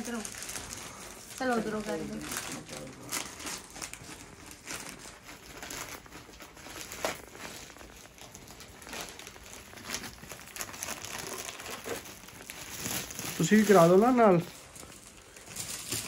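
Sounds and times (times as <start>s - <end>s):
plastic bag crinkling and ripping: 0.0s - 16.0s.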